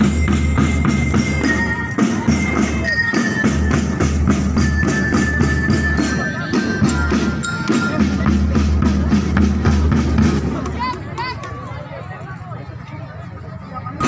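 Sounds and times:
snare and bass drums: 0:00.0 - 0:11.2.

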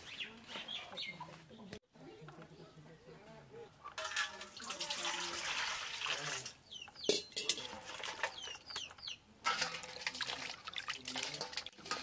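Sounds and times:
bird chirping: 0:00.0 - 0:04.0, 0:06.6 - 0:07.4, 0:08.2 - 0:09.2
steel pot clanking: 0:04.0 - 0:06.2, 0:07.0 - 0:08.6, 0:09.4 - 0:12.0
water splashing into steel bowl: 0:04.0 - 0:08.6, 0:09.4 - 0:12.0.

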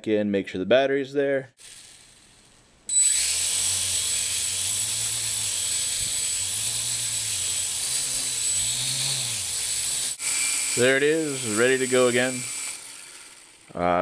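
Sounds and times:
quadcopter motors whining: 0:01.6 - 0:14.0.

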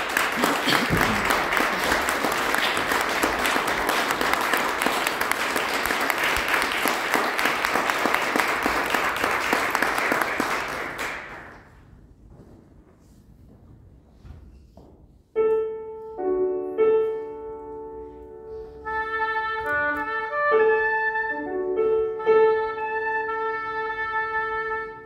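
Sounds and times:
audience applauding: 0:00.0 - 0:11.7.

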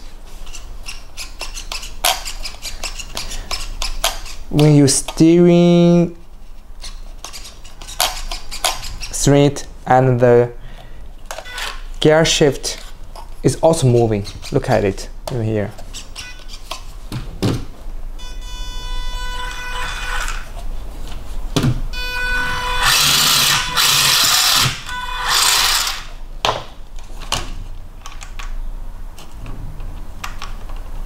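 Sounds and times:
electric motor whine: 0:22.1 - 0:26.1
loud motor whir: 0:22.3 - 0:26.1.

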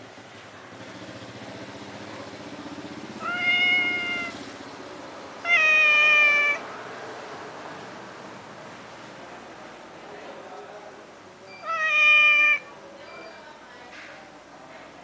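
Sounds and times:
cat meowing: 0:03.2 - 0:04.4, 0:05.4 - 0:06.7, 0:11.5 - 0:12.8.

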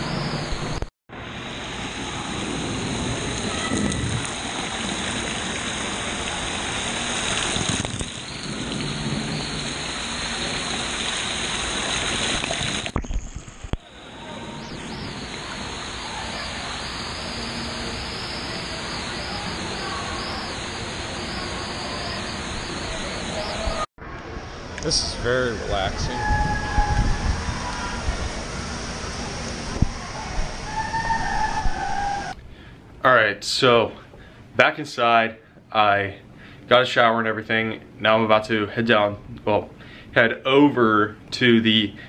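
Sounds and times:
pool water splashing and rushing: 0:00.0 - 0:25.9, 0:26.5 - 0:32.4
water pouring from spray pipe: 0:03.3 - 0:13.8.

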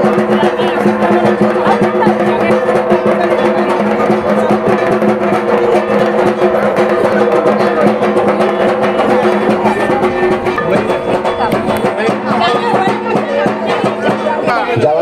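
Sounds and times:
fast drum strokes: 0:00.0 - 0:15.0
steady held tones: 0:04.0 - 0:14.0.

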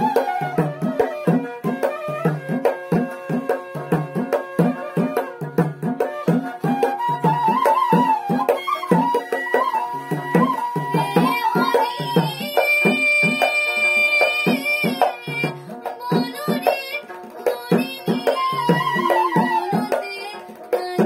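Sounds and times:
hand drum rhythm: 0:00.0 - 0:21.0
held melody line: 0:00.0 - 0:21.0.

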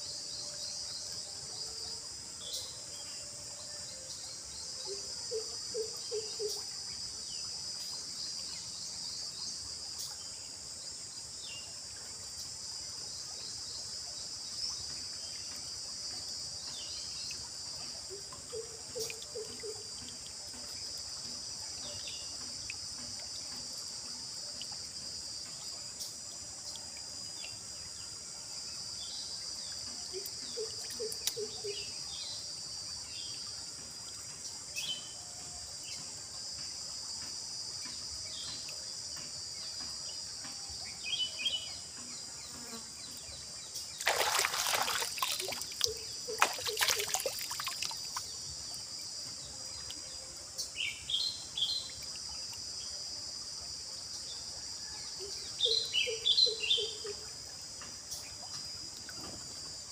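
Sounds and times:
insects droning: 0:00.0 - 0:59.9
hands splashing in stream water: 0:44.0 - 0:48.3.

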